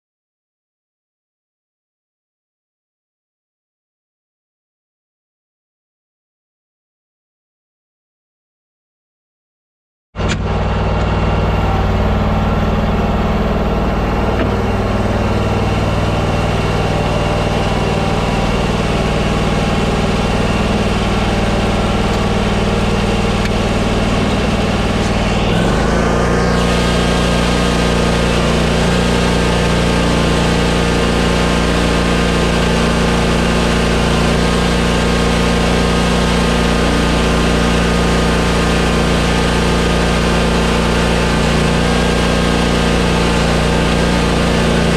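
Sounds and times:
mower engine running: 10.2 - 44.9.

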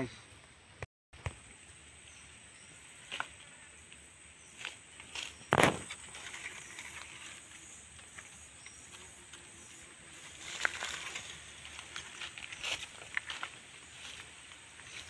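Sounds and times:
rustling: 10.2 - 14.3.

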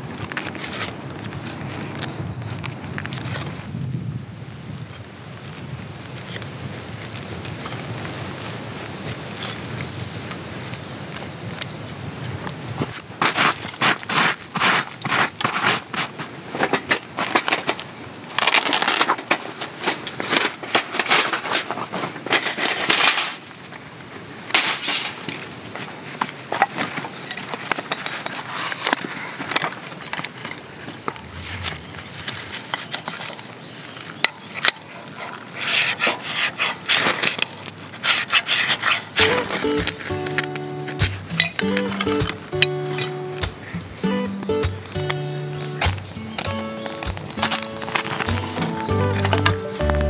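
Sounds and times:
hand sweeping dry leaves: 13.2 - 16.4, 34.9 - 50.0
ferro rod scraping: 28.0 - 50.0.

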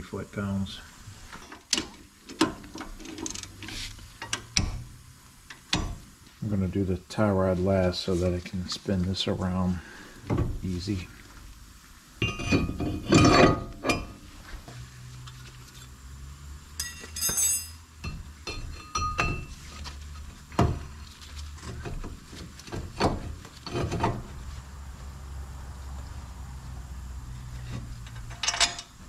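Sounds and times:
metal clanks and clinks: 12.2 - 14.2, 16.8 - 19.6, 28.0 - 29.0.

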